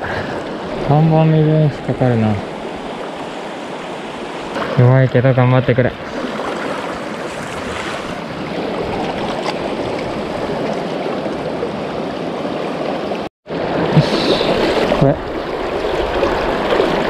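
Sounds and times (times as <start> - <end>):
river water rushing: 0.0 - 4.9, 6.0 - 17.0.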